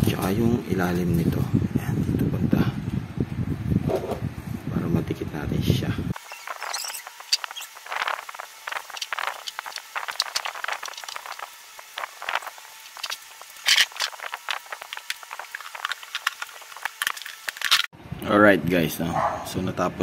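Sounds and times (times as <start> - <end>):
foam padding rustling and scraping: 6.2 - 17.9.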